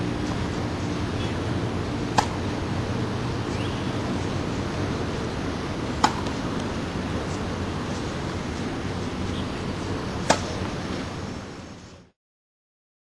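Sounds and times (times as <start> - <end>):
low background rumble: 0.0 - 11.9
tennis racket striking ball: 2.1 - 2.5, 5.8 - 6.8, 10.1 - 10.8.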